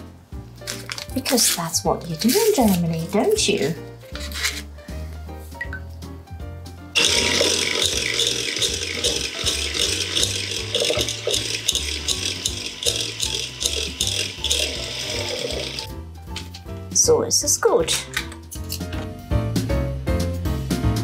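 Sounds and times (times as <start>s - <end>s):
background music: 0.0s - 21.0s
electric hand mixer whipping: 7.0s - 15.9s.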